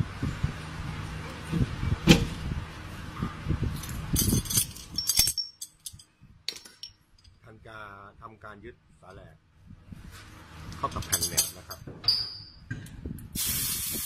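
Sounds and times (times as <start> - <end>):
jingle of loose metal parts: 3.8 - 7.4, 10.8 - 12.6
metal knocks and clinks: 3.8 - 7.4, 10.8 - 12.6.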